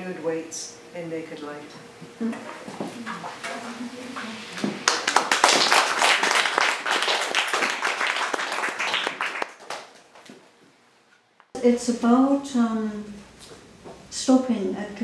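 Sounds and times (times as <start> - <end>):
audience applauding: 4.6 - 10.0.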